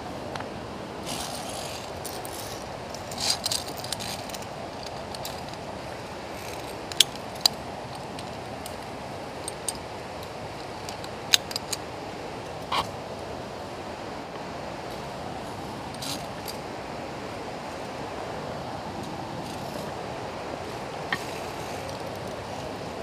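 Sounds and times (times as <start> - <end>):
steady rushing noise: 0.0 - 23.0
carabiners clinking on steel cable: 1.1 - 5.7, 6.4 - 11.9.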